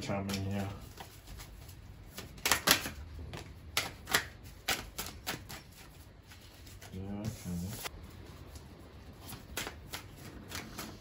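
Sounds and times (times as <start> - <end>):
cards snapping and tapping: 2.1 - 5.8, 9.3 - 11.0.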